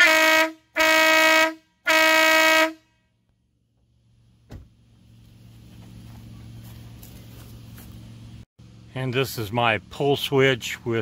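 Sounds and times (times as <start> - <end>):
electric air horn blasts: 0.0 - 3.1.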